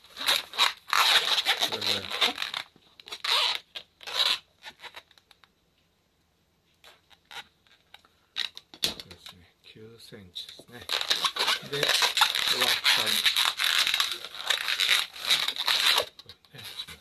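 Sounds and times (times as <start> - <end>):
balloon rubbing and squeaking: 0.0 - 5.4, 6.9 - 8.6, 10.7 - 17.0.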